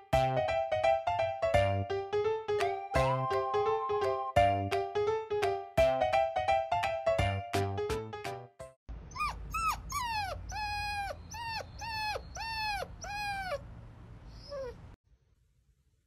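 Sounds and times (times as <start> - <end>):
puppy whimpering: 9.1 - 13.7, 14.3 - 15.0.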